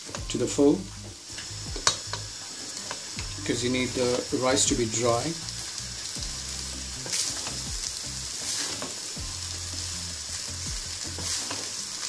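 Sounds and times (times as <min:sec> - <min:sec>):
rice sizzling in a pan: 0:00.0 - 0:12.0.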